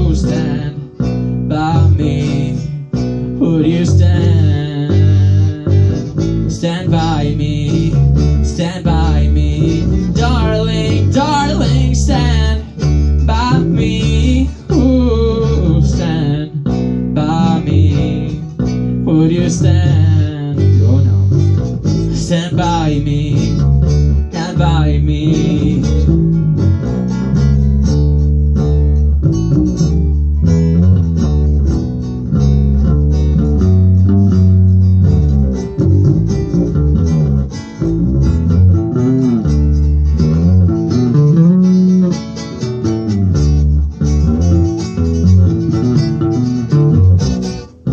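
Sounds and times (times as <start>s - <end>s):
person singing: 0.0s - 26.5s
guitar and bass playing: 0.0s - 47.9s.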